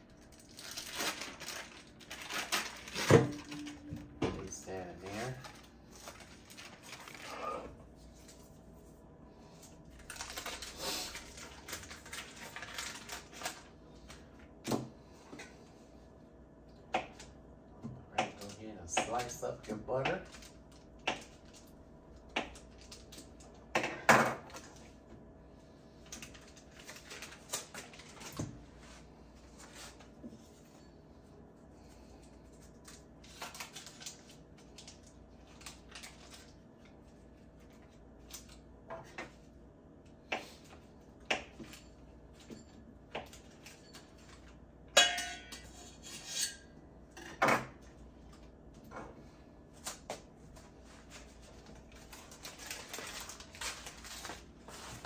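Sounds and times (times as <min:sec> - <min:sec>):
utensils and dishes clinking: 0:43.6 - 0:47.4.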